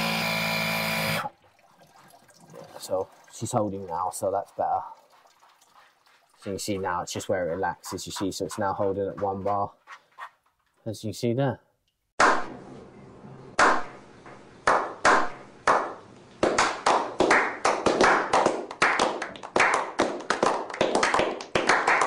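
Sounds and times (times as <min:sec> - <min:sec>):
group clapping: 0:14.6 - 0:22.0.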